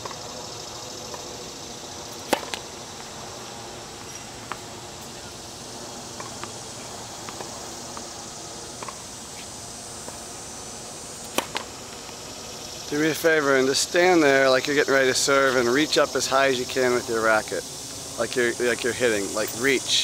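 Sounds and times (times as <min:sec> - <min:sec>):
insect drone: 0:00.0 - 0:20.0
racket striking ball: 0:02.1 - 0:03.1, 0:04.0 - 0:05.4, 0:06.0 - 0:10.3, 0:11.2 - 0:12.2.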